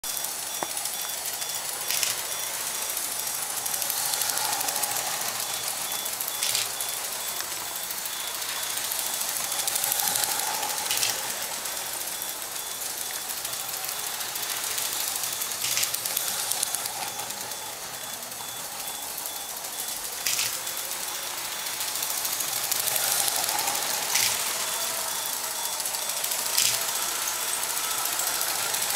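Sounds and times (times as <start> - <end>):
toy train motor whirr: 0.0 - 28.9
sharp click: 24.1 - 24.4, 26.6 - 26.9.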